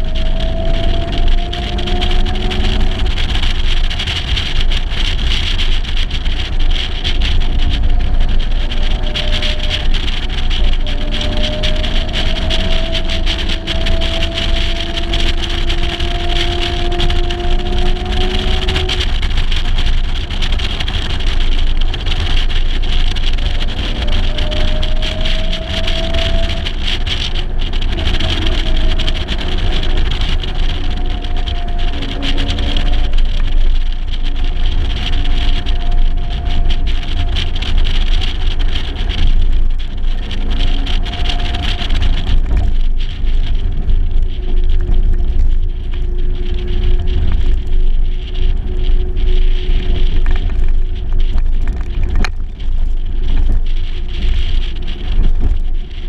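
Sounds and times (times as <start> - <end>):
car engine revving: 0.0 - 4.5, 6.8 - 22.4, 23.2 - 34.2
wind buffeting microphone: 0.0 - 56.0.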